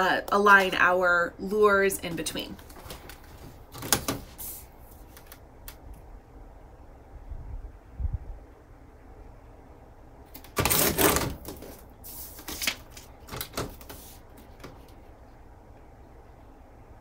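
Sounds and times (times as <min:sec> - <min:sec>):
paper rustling and sliding: 0:10.4 - 0:15.0.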